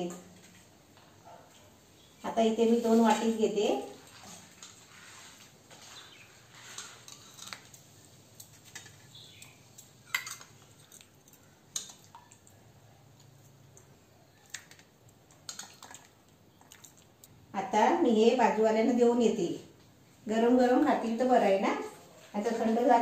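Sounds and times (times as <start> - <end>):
steel ladle and bowls clinking: 9.8 - 12.0.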